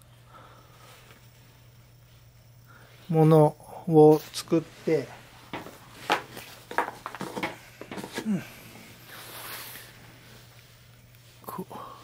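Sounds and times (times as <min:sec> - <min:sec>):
light taps and knocks on hose: 0:05.5 - 0:08.2
soft rustle of hose: 0:08.8 - 0:11.5.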